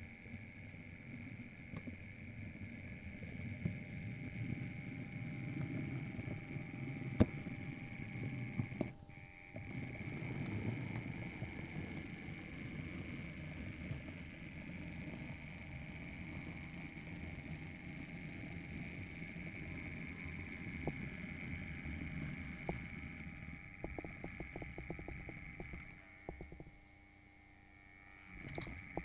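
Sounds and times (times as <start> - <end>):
model train wheels rumbling: 0.0 - 26.6
high motor whine: 0.0 - 29.0.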